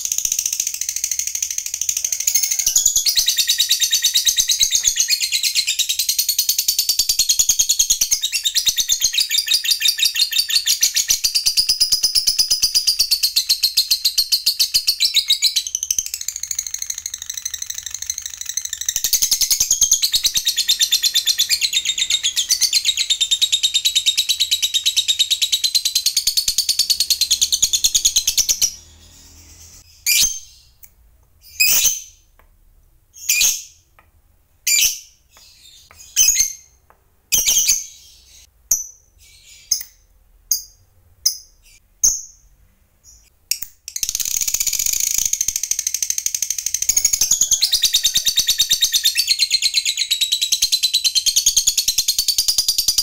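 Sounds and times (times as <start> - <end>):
lovebird rattling chatter: 44.0 - 47.9.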